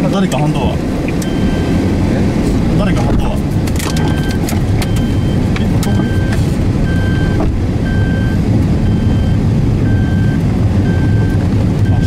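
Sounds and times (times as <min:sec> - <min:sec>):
car engine and tyre rumble: 0:00.0 - 0:12.0
electronic warning chime beeping: 0:01.2 - 0:01.7, 0:03.9 - 0:12.0.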